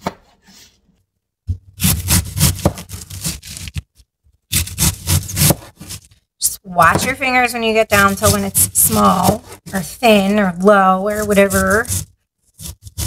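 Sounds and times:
knife crunching through cabbage: 1.6s - 6.2s, 11.2s - 13.0s
knife blade scraping board: 4.5s - 6.2s.

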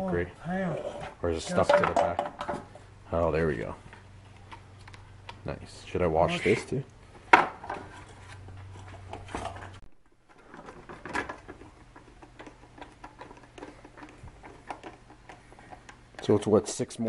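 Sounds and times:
plastic clicking and knocking: 10.4s - 16.5s.

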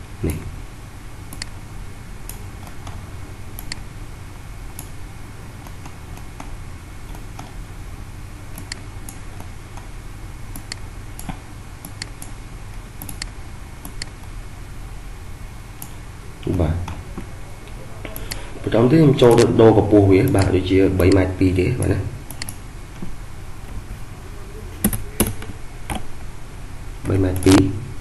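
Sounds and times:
low microphone hum: 0.0s - 28.0s
computer mouse clicking: 1.3s - 1.6s, 3.6s - 3.8s, 4.8s - 5.0s, 8.5s - 9.9s, 10.5s - 12.4s, 13.0s - 14.3s, 20.2s - 20.5s, 22.3s - 23.8s.

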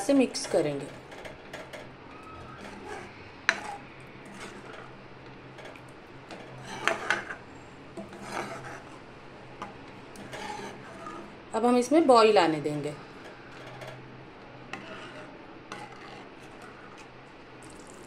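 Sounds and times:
metal spoon scraping a pan: 0.0s - 1.7s, 2.4s - 5.0s, 5.6s - 7.4s, 8.0s - 9.0s, 9.6s - 11.3s, 13.0s - 17.1s
faint steady hum: 0.0s - 18.0s.

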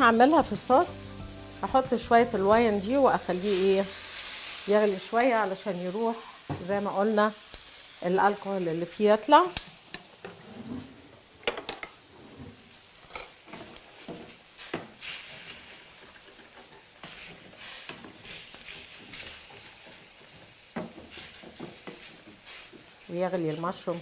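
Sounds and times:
mushrooms sizzling in a skillet: 0.0s - 10.4s, 12.6s - 24.0s
wooden spatula scraping a pan: 1.6s - 6.7s, 12.0s - 12.8s, 13.4s - 24.0s.

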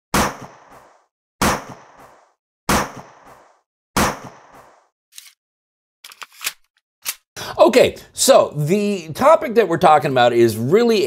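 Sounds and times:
gunshot bangs: 2.7s - 3.3s, 4.0s - 4.7s.

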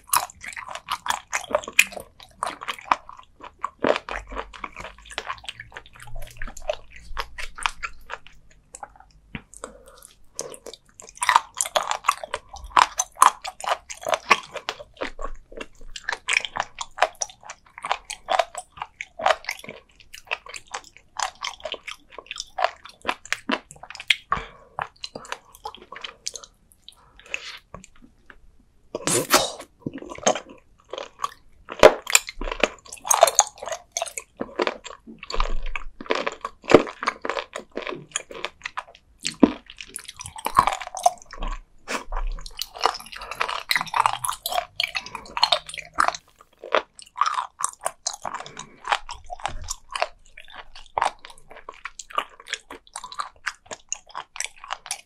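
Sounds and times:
crunchy chewing: 29.0s - 55.0s.

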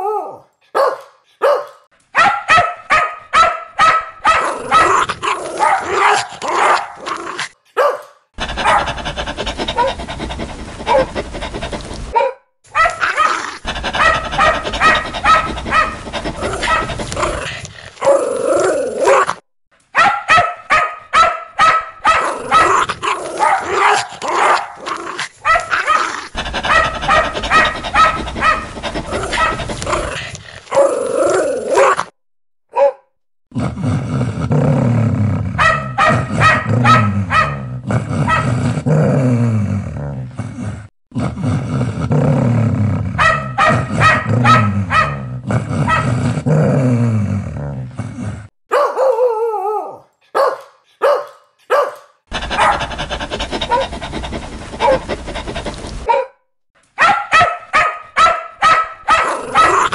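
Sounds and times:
dog barking aggressively: 0.7s - 7.2s, 7.8s - 18.3s, 20.0s - 31.0s, 35.6s - 38.7s, 43.2s - 46.3s, 48.7s - 49.2s, 50.3s - 56.4s, 57.0s - 59.9s.

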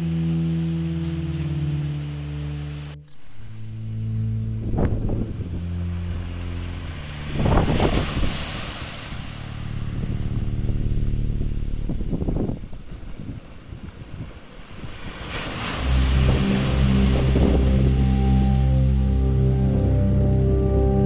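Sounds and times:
low steady hum: 0.0s - 21.0s
wind rumbling on microphone: 2.8s - 21.0s
small waves breaking on shore: 6.0s - 10.5s, 12.3s - 18.9s.

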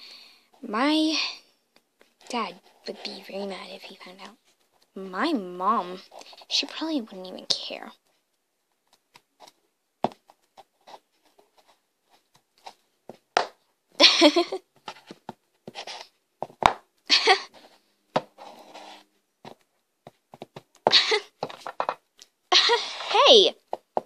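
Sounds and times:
scraping squishing noises: 2.0s - 8.3s.

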